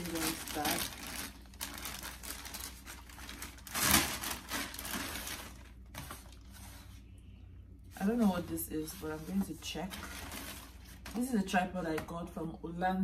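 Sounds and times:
packaging wrap crinkling: 0.0 - 6.9.

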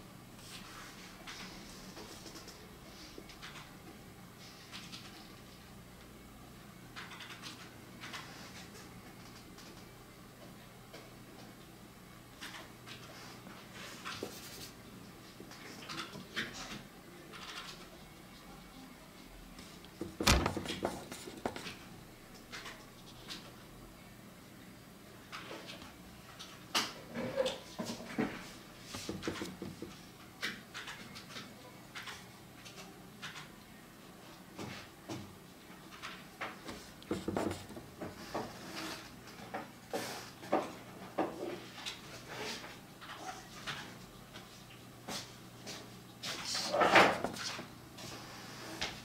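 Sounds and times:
brush pen scratching paper: 37.1 - 37.8.

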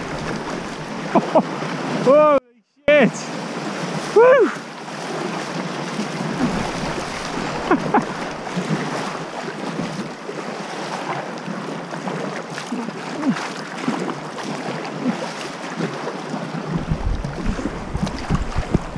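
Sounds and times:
water sloshing around kayak: 0.0 - 18.9
wind buffeting microphone: 16.7 - 18.9.

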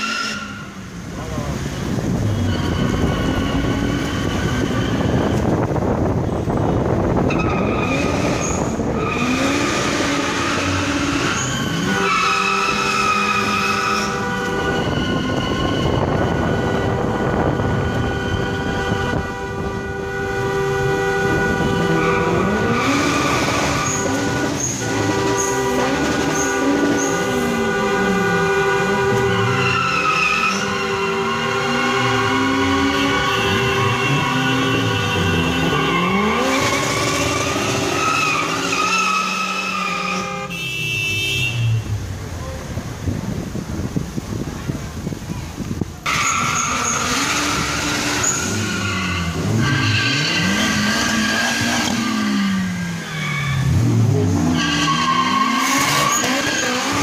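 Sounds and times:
car horns honking: 0.0 - 42.8, 46.0 - 57.0
cars driving: 0.0 - 57.0
engine revving: 7.6 - 40.5, 46.1 - 57.0.

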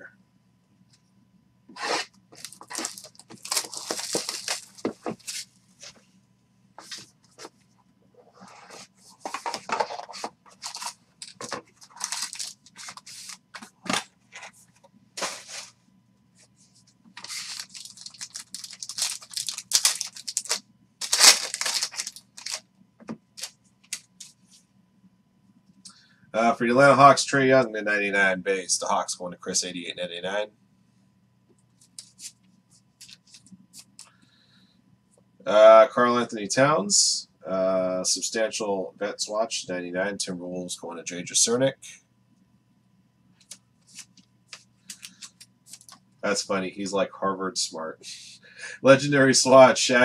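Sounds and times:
packaging tearing and crinkling: 1.8 - 5.4, 10.6 - 14.0, 17.2 - 22.6.

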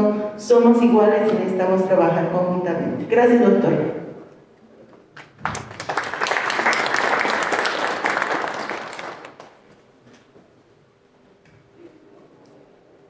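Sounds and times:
audience applauding: 5.2 - 9.6.

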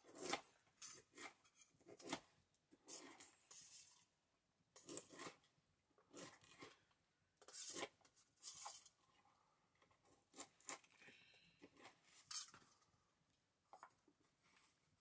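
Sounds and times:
knife crunching through cabbage: 0.0 - 4.0, 4.8 - 5.5, 6.1 - 6.8, 10.3 - 11.0.

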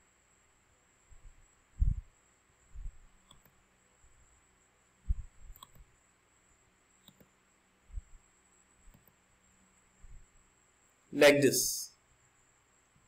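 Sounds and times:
soft low thumps: 1.8 - 2.1, 5.1 - 5.6
computer mouse clicks: 3.2 - 3.6, 5.5 - 5.9, 7.0 - 7.4, 8.8 - 9.2.

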